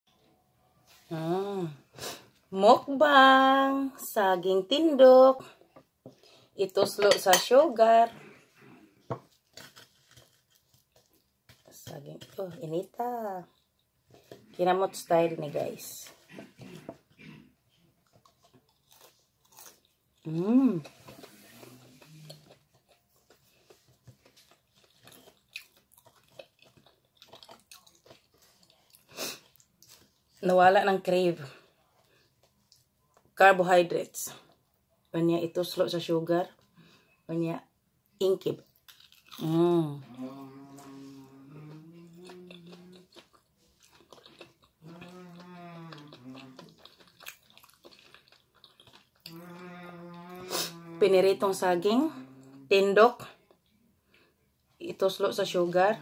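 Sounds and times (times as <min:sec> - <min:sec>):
woman humming mmm: 0:01.1 - 0:01.8, 0:20.3 - 0:20.9, 0:39.4 - 0:43.1, 0:44.8 - 0:46.8, 0:49.3 - 0:51.1
person chewing: 0:08.1 - 0:14.6, 0:16.1 - 0:30.4, 0:38.6 - 0:51.0.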